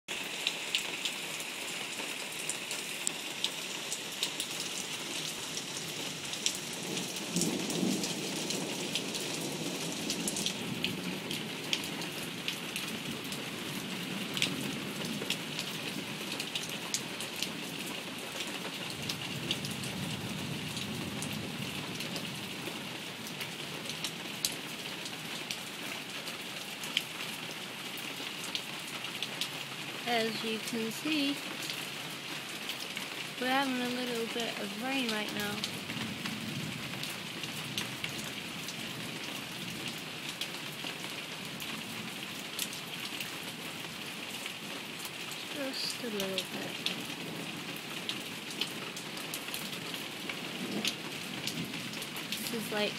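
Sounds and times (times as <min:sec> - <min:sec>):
heavy rain pouring: 0:00.1 - 0:52.9
raindrops ticking: 0:00.1 - 0:52.9.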